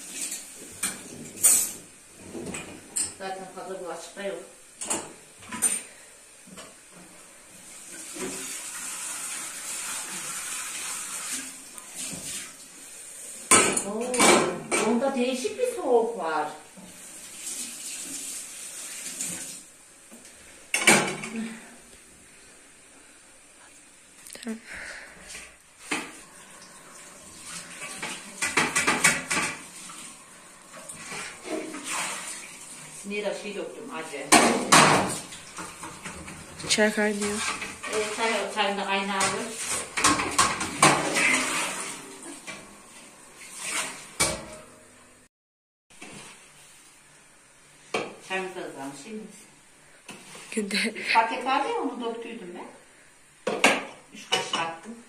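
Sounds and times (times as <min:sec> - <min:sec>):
tap water running: 0:00.0 - 0:22.6, 0:25.0 - 0:44.8
dishes clattering: 0:00.2 - 0:03.2, 0:13.5 - 0:15.0, 0:20.7 - 0:21.4, 0:27.8 - 0:29.8, 0:34.3 - 0:36.6, 0:39.2 - 0:42.7, 0:43.8 - 0:44.7, 0:53.4 - 0:54.8.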